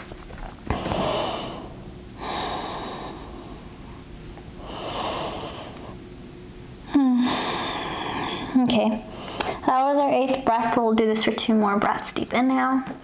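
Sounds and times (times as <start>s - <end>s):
person breathing deeply: 0.7s - 4.0s, 4.6s - 6.0s, 6.9s - 9.6s.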